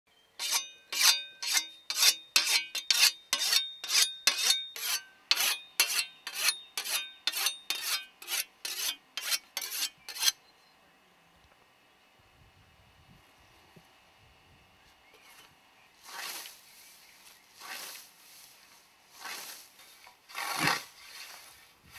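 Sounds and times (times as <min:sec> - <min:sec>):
scythe sharpened with whetstone: 0:00.4 - 0:10.4.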